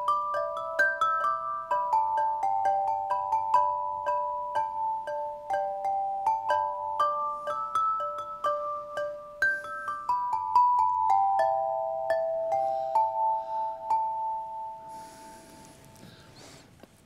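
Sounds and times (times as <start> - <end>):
metal chime tubes ringing: 0.0 - 16.4.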